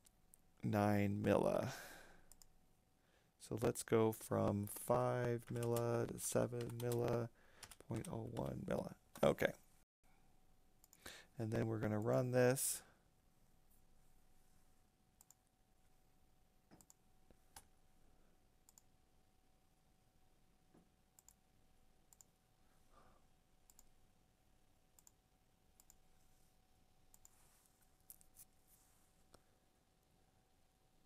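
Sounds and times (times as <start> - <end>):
computer mouse clicks: 15.2 - 15.4, 16.7 - 17.7, 18.7 - 18.9, 21.2 - 21.4, 22.1 - 22.3, 23.7 - 23.9, 25.0 - 25.2, 25.8 - 26.0, 27.1 - 27.4.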